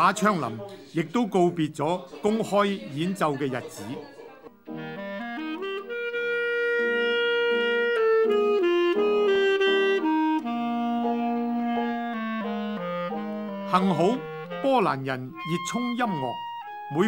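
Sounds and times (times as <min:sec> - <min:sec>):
piano accompaniment: 0:04.6 - 0:17.0
clarinet melody: 0:04.7 - 0:17.0.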